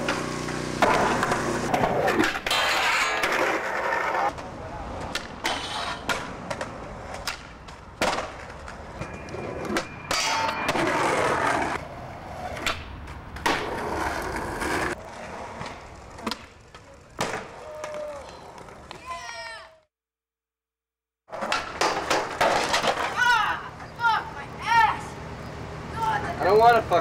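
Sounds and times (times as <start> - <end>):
skateboard pops and landings: 0.0 - 3.8, 5.1 - 8.6, 12.5 - 14.2, 15.6 - 19.0, 21.3 - 23.2
skateboard wheels rolling on concrete: 0.0 - 19.9, 21.3 - 27.0.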